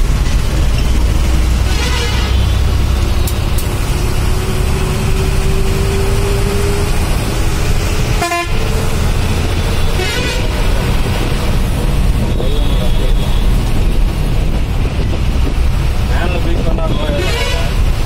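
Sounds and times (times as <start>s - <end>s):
vehicle engine and road rumble: 0.0s - 18.0s
car horn blast: 1.7s - 2.5s, 8.2s - 8.6s, 9.9s - 10.6s.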